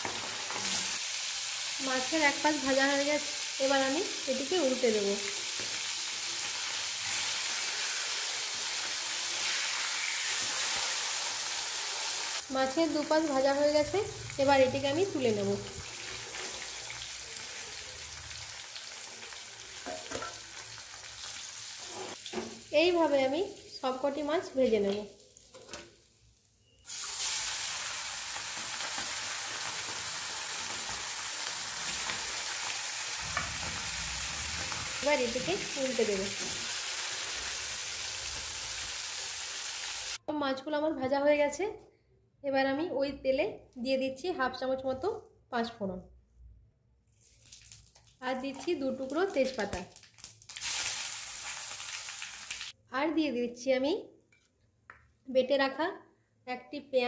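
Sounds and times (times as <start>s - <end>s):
fish sizzling in hot oil: 0.0s - 23.8s, 25.2s - 40.2s, 47.2s - 52.8s.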